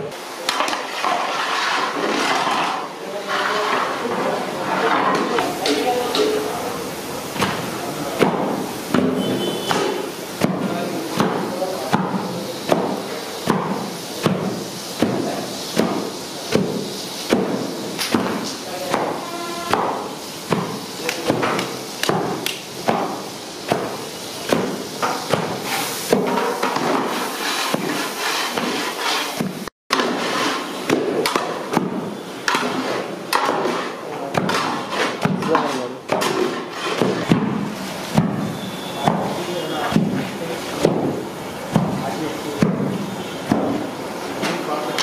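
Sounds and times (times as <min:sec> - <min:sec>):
metal ladle scraping a metal pan: 0:00.5 - 0:05.2, 0:25.1 - 0:31.5, 0:32.4 - 0:37.4.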